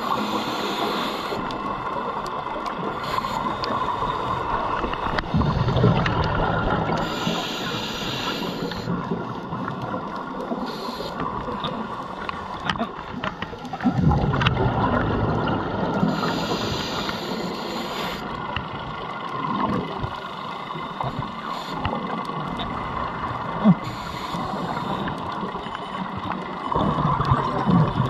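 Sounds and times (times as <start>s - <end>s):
regulator hissing inhalations: 0.0s - 1.5s, 3.0s - 4.4s, 7.0s - 8.9s, 10.6s - 11.3s, 16.1s - 18.4s, 23.8s - 25.2s
exhaled bubbles underwater: 0.0s - 28.0s.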